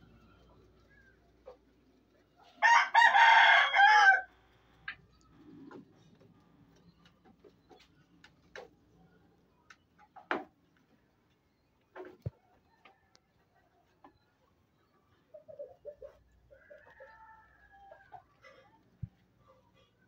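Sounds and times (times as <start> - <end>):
rooster crowing: 2.6 - 4.3.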